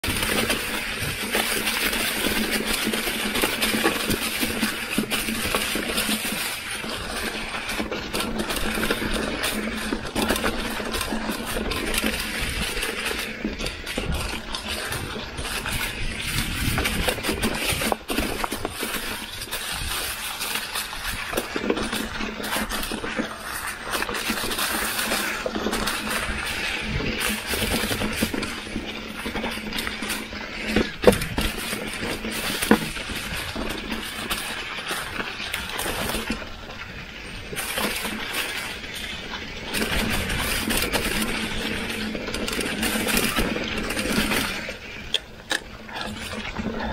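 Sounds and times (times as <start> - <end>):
bike clicks and rattles: 0.0 - 46.9
freewheel hub buzz: 0.0 - 46.9
tyres crunching through dry leaves: 0.0 - 46.9.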